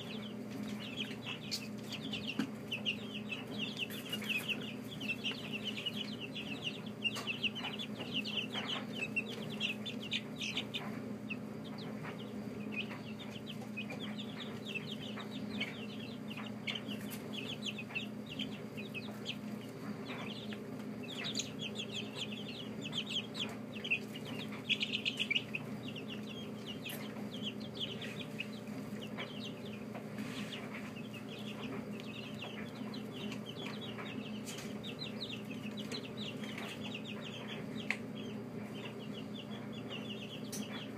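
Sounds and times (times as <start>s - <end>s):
chicks peeping: 0.0s - 40.9s
steady low hum: 0.0s - 40.9s.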